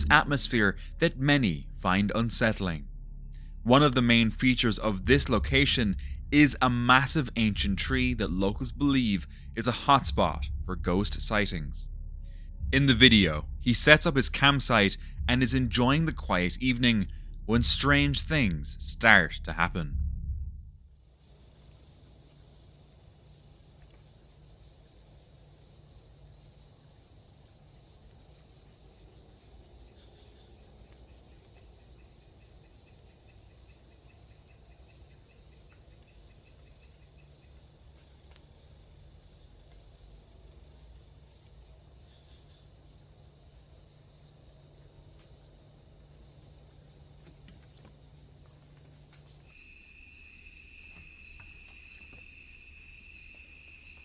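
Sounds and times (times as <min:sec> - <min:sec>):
faint low hum: 0:00.0 - 0:54.0
lower-pitched insect trill: 0:20.8 - 0:54.0.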